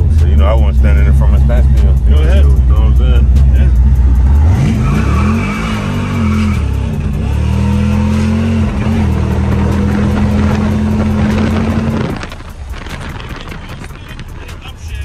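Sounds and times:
car engine pulling hard: 0:00.0 - 0:15.0.

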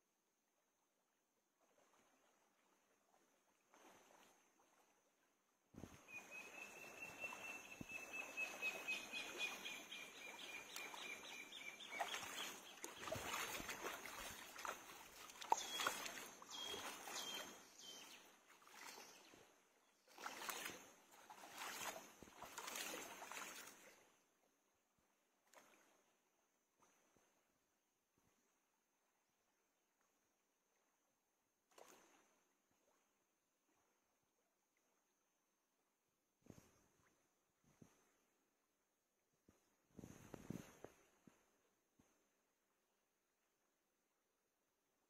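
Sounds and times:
stream water splashing: 0:01.3 - 0:24.3, 0:25.3 - 0:27.3, 0:31.7 - 0:34.2.

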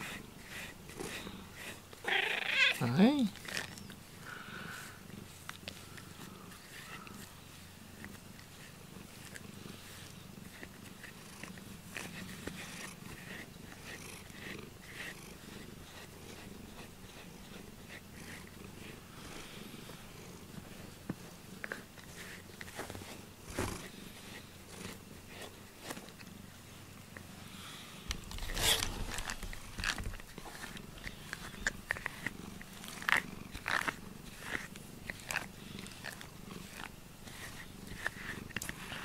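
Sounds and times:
brush rasping through fur: 0:00.0 - 0:39.0
cat purring: 0:00.0 - 0:39.0
loud rustle: 0:28.1 - 0:31.0.

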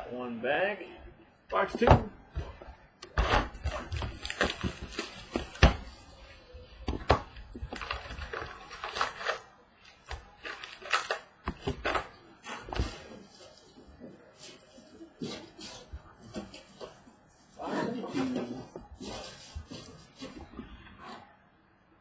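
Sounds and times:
packaging rustling: 0:03.5 - 0:06.3, 0:07.2 - 0:17.6.

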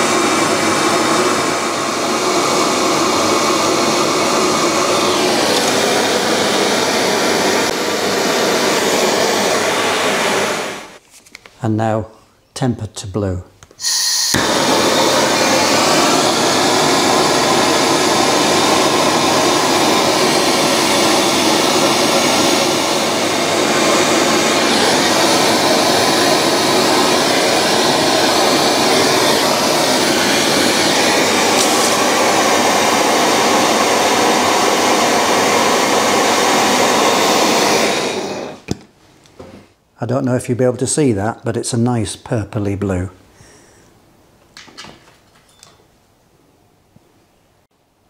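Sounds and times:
blowtorch flame burning: 0:00.0 - 0:11.0, 0:13.8 - 0:38.8.

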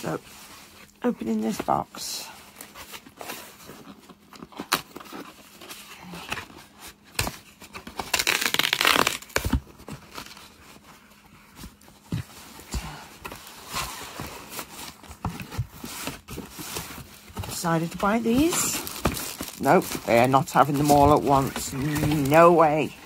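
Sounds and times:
cardboard tearing: 0:02.6 - 0:11.0, 0:13.2 - 0:23.0.

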